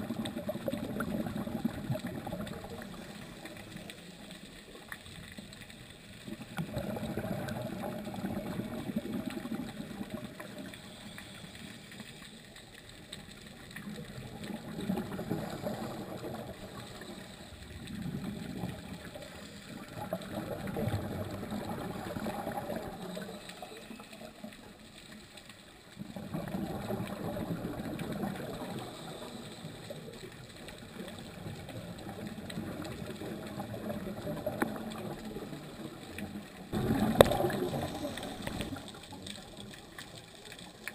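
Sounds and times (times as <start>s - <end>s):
underwater regulator bubbles: 0.0s - 5.0s, 6.2s - 11.4s, 13.1s - 24.8s, 25.9s - 40.9s.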